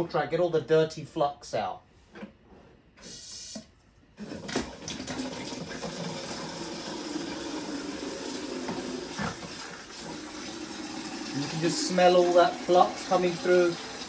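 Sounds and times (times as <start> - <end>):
water gushing into bucket: 4.2 - 14.0.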